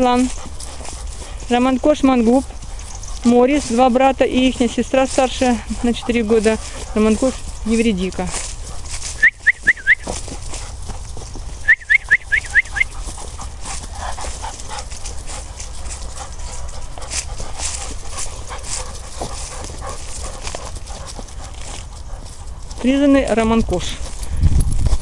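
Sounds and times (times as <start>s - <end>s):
footsteps in fallen leaves: 0.0s - 25.0s
puppy yelping: 11.7s - 13.0s.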